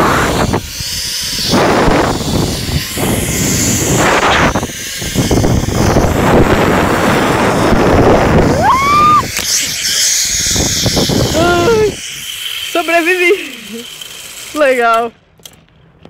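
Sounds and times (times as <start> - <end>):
wind buffeting microphone: 0.0 - 12.3.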